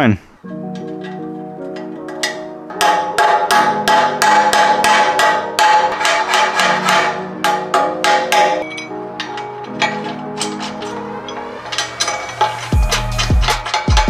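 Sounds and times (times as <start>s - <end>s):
background music: 0.4s - 14.0s
hammer striking metal: 0.5s - 14.0s.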